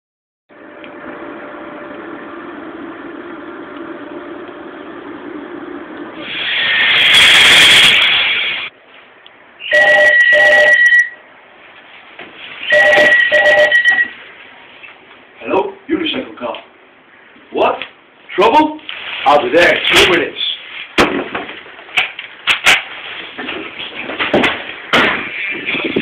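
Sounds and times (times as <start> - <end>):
loud rushing hiss: 6.2 - 8.7
telephone ringing: 9.7 - 11.2, 12.7 - 14.2.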